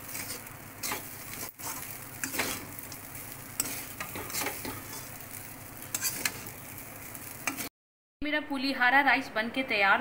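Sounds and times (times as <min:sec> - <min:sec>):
low sizzle: 0:00.0 - 0:07.7
spatula stirring rice: 0:00.0 - 0:07.7
spatula scraping metal pan: 0:03.6 - 0:05.1, 0:05.9 - 0:06.5.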